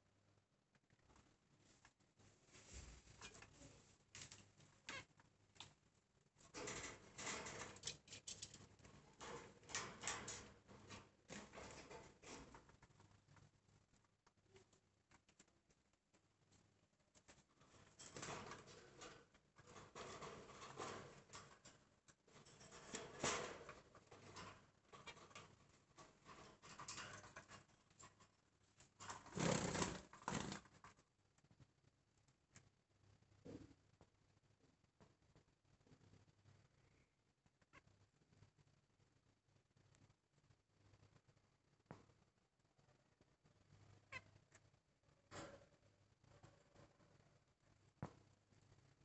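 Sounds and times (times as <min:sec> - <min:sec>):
bird scratching and rustling: 0:06.4 - 0:13.5, 0:16.5 - 0:31.0.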